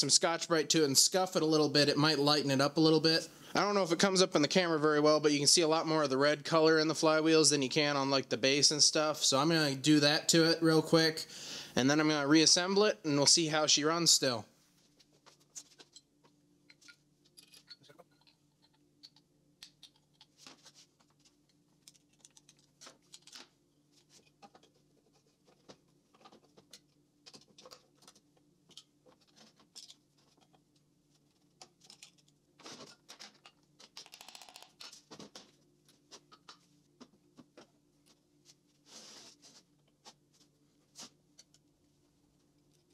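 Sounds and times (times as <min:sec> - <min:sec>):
faint steady hum: 0:00.0 - 0:42.9
metal parts clicking and scraping: 0:16.7 - 0:19.2, 0:31.6 - 0:35.0.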